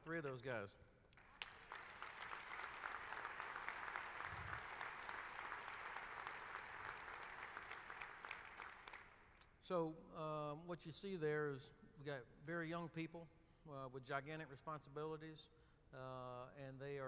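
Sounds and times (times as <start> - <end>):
audience applauding: 1.2 - 9.2.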